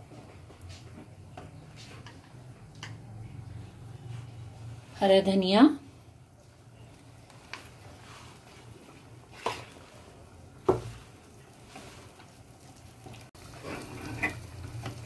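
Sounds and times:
spatula scraping simmering gravy: 0:05.9 - 0:15.0.

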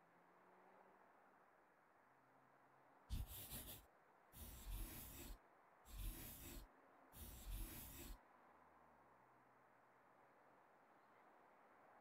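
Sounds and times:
pen writing on paper: 0:03.1 - 0:03.8, 0:04.4 - 0:08.2.

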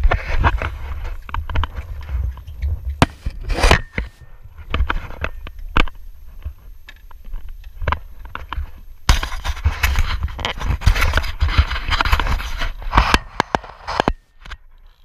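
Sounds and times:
wind rumbling on microphone: 0:00.0 - 0:05.3
scraping rustle: 0:00.0 - 0:05.4, 0:07.9 - 0:14.1.

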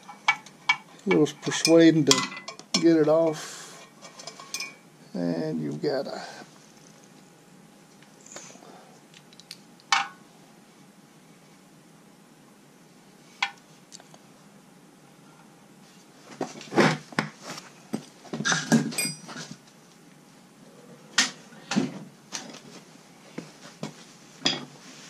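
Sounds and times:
metal tools clattering on steel: 0:00.0 - 0:02.9, 0:04.0 - 0:04.8, 0:18.5 - 0:19.6, 0:24.4 - 0:24.7.

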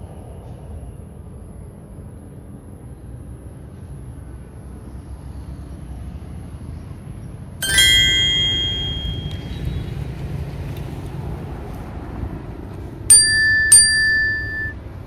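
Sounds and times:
small metal bell struck: 0:07.6 - 0:09.8, 0:13.1 - 0:14.8.

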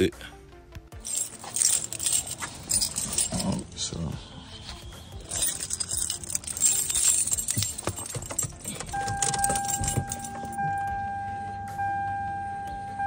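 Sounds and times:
key clicks and rattles: 0:01.0 - 0:03.6, 0:05.2 - 0:10.7
car keys jangling: 0:01.0 - 0:03.8, 0:04.6 - 0:10.9.

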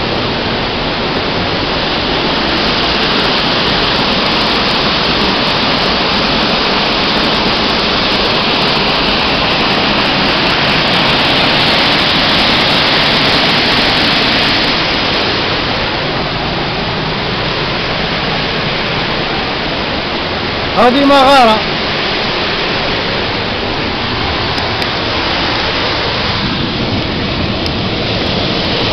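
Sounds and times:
waterfall rushing: 0:00.0 - 0:28.9.

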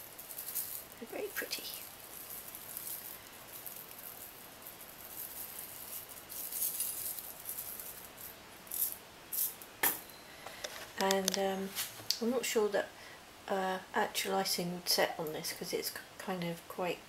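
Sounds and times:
sprinkles rattling in shaker jar: 0:00.0 - 0:09.6.

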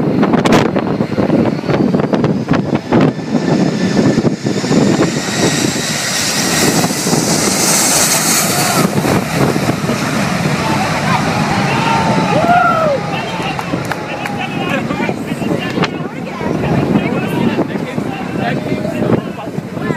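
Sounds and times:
jet engines whining: 0:00.0 - 0:19.9
wind gusting on microphone: 0:00.0 - 0:19.9.

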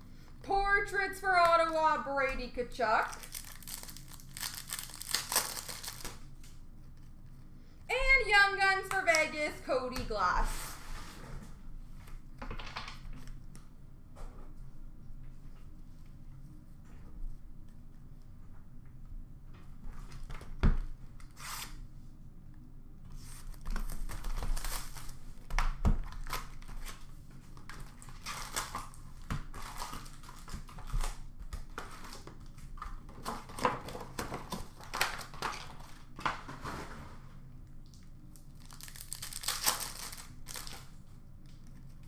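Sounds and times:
card wrappers tearing and crinkling: 0:03.0 - 0:06.6, 0:23.3 - 0:25.2, 0:26.0 - 0:36.0, 0:38.4 - 0:42.0
cards rustling: 0:03.1 - 0:06.2, 0:38.6 - 0:40.9.

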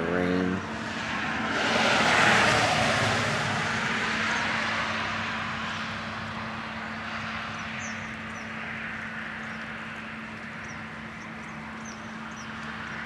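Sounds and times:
vehicle tyre hiss passing: 0:00.6 - 0:07.9.

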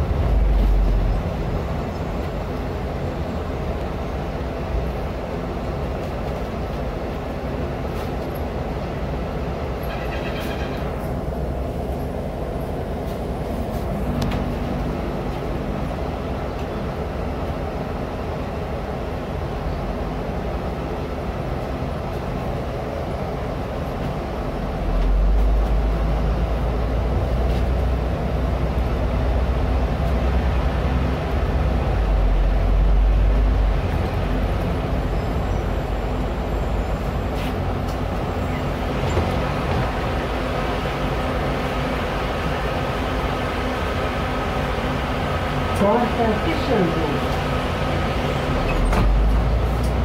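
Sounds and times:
deep loud rumble: 0:00.0 - 0:02.5
bus engine drone: 0:00.0 - 0:50.0
road noise: 0:00.0 - 0:50.0.

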